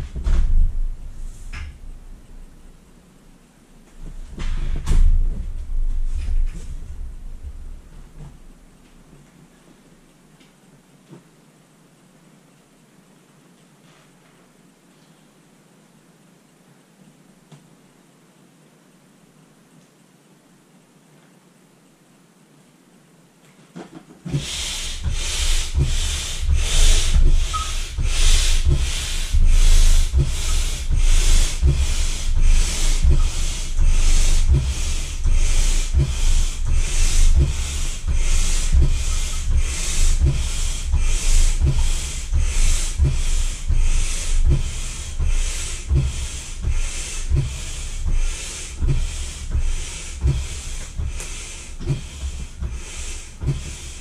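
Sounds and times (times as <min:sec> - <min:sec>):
manual air pump strokes: 0:23.7 - 0:54.0.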